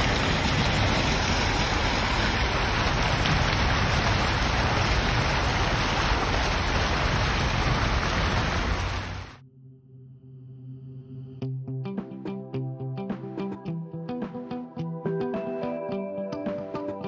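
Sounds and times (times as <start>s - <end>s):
fountain water splashing: 0.0s - 9.4s.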